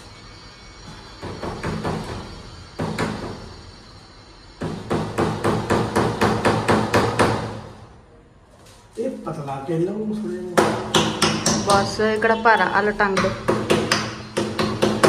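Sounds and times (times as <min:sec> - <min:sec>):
hammer tapping a nail into wood: 0:10.6 - 0:11.9, 0:13.2 - 0:15.0.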